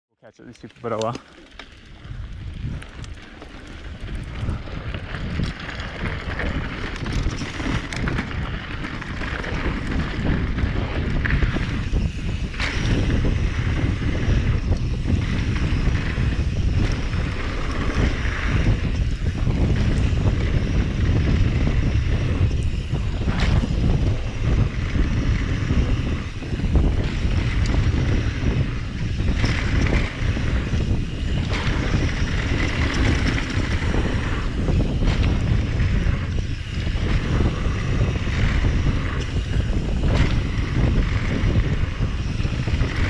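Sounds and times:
bike clicks and rattles: 0.2s - 43.0s
wind buffeting microphone: 0.6s - 43.0s.

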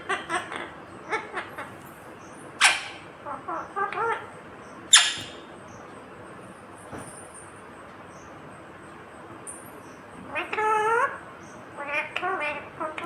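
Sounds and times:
parakeet chattering: 0.0s - 5.5s, 10.3s - 13.0s
parakeet shrill screeches: 4.9s - 5.4s.

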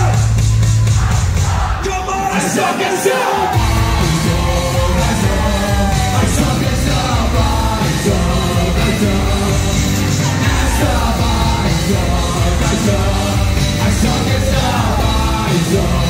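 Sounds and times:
lead singer singing: 1.8s - 16.0s
live band playing: 3.5s - 16.0s.

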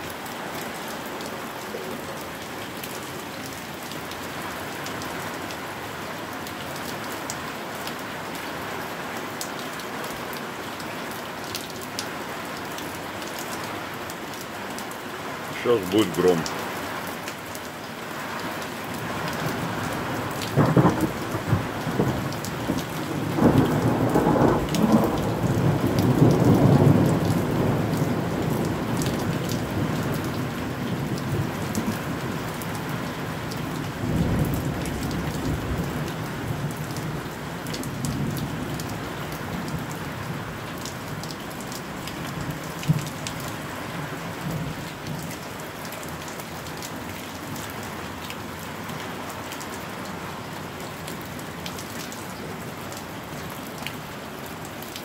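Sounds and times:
rain hissing: 15.3s - 17.0s, 18.2s - 40.7s
thunder rumbling: 23.1s - 29.0s.

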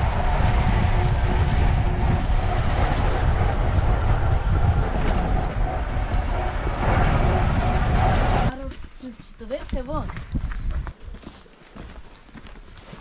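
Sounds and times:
vehicle driving on rough road: 0.0s - 8.9s.

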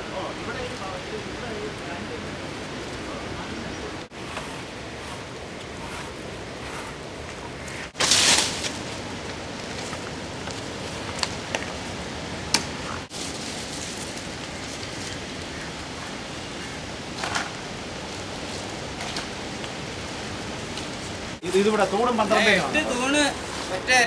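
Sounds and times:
steady outdoor noise: 0.0s - 24.0s
loud rustle: 4.1s - 12.0s, 12.6s - 15.6s.

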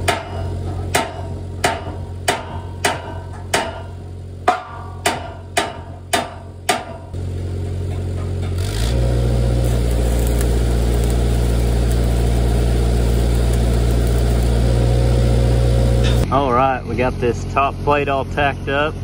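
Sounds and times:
welder engine running: 7.2s - 16.3s.

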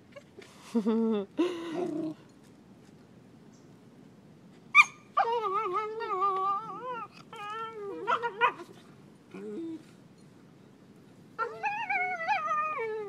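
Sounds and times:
dog yipping: 4.7s - 8.7s
dog yelping: 4.7s - 9.8s
dog whining: 4.7s - 10.0s, 11.4s - 13.0s.

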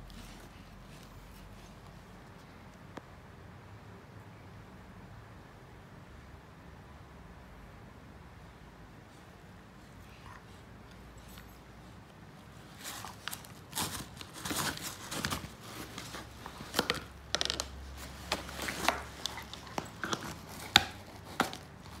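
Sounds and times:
puppy chewing plastic toy: 13.0s - 22.0s.

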